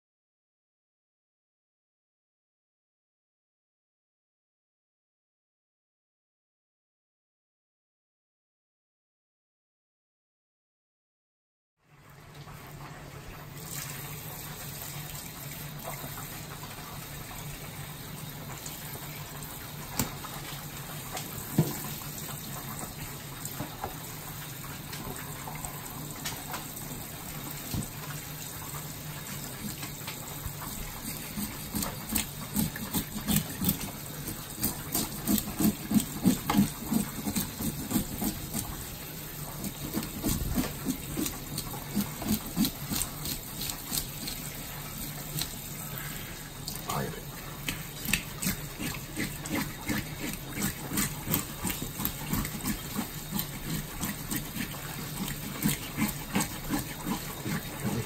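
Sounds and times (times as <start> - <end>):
faucet water running into sink: 12.3 - 58.0
hands scraping fish: 30.6 - 45.6, 47.6 - 58.0.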